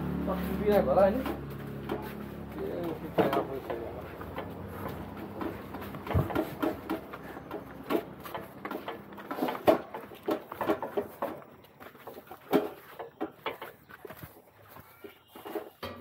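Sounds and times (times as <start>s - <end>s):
footsteps on concrete steps: 0.3s - 16.0s
metal pots clinking: 15.4s - 16.0s.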